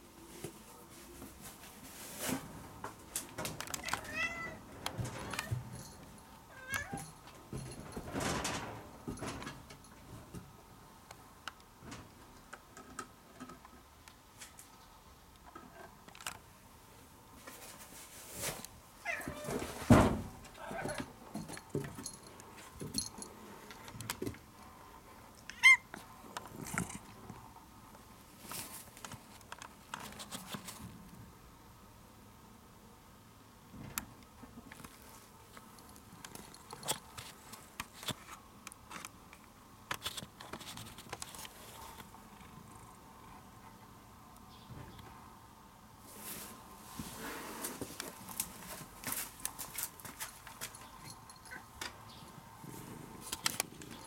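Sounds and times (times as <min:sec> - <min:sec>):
small clicks and knocks: 0:03.1 - 0:04.2, 0:11.4 - 0:16.5, 0:33.8 - 0:42.2
cat meowing: 0:03.8 - 0:04.6, 0:06.5 - 0:07.0, 0:19.0 - 0:19.5, 0:25.5 - 0:25.9.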